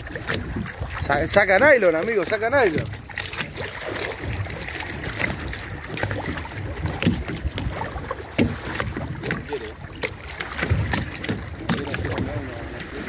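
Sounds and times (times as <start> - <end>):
water sloshing against boat hull: 0.0 - 13.0
knocks and clicks: 10.0 - 12.9.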